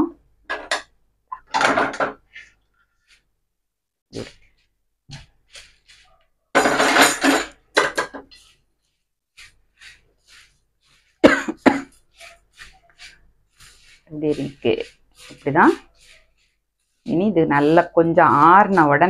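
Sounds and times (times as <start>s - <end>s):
grains rattling on steel pan: 5.5s - 8.6s, 9.4s - 19.0s.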